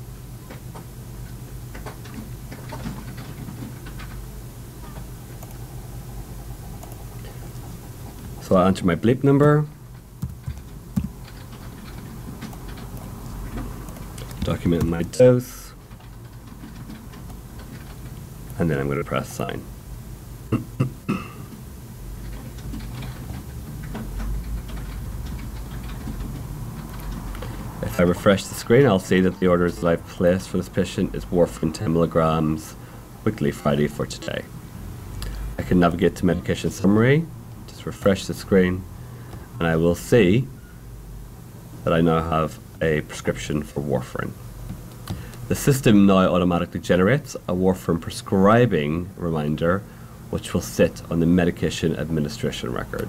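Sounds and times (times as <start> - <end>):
low electrical hum: 0.0 - 53.0
computer mouse clicks: 5.4 - 5.6, 6.8 - 7.0.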